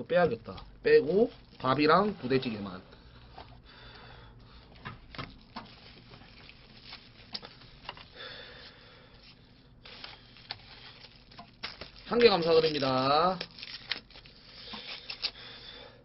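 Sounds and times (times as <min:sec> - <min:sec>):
plastic wrapping rustling: 0:05.0 - 0:15.5.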